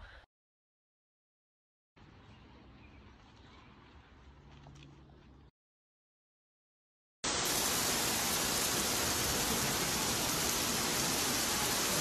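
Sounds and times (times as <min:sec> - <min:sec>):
heavy rain hissing: 0:07.2 - 0:12.0.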